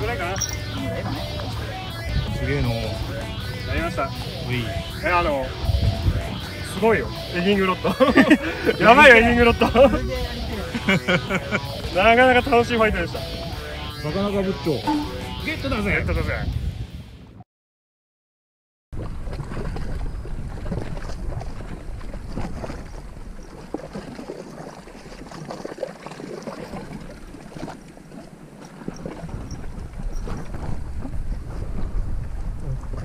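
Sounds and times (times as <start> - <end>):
wind buffeting microphone: 0.0 - 17.2, 19.0 - 25.8, 26.5 - 33.0
waves lapping against concrete: 19.0 - 33.0.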